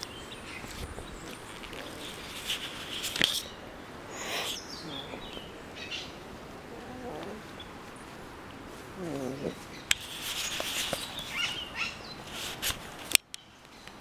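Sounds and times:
faint bird chirps: 3.4s - 6.2s.

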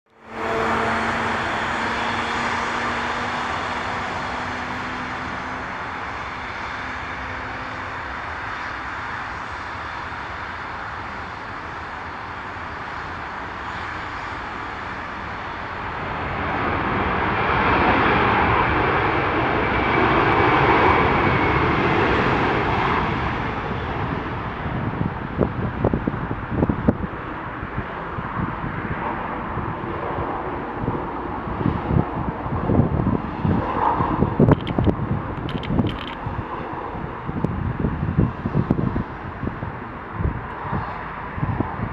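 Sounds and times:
faint jet engine whine: 0.1s - 41.9s
jet engine roar: 0.1s - 41.9s.

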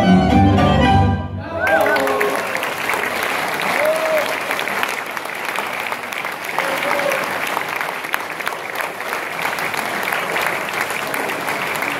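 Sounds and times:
voice calling from crowd: 1.4s - 2.7s, 6.0s - 7.5s
audience applauding: 1.4s - 11.9s.

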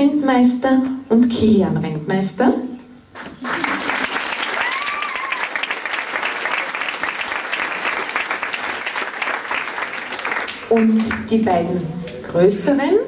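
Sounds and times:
audience clapping: 3.1s - 11.5s.

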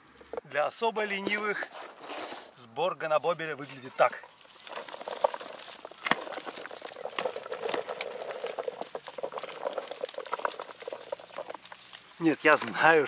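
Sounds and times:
berries pattering into plastic tub: 4.2s - 13.0s.

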